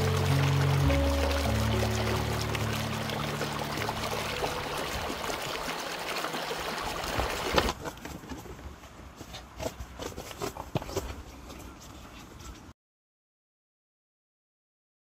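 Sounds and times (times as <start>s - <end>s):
river water rushing: 0.0s - 7.7s.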